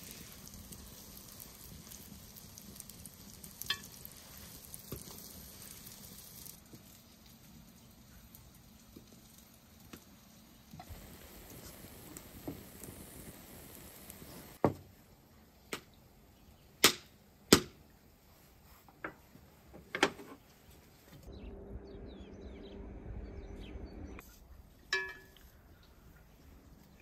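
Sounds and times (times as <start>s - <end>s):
utensils clicking against pan: 3.6s - 4.1s
low steady hum: 21.2s - 27.0s.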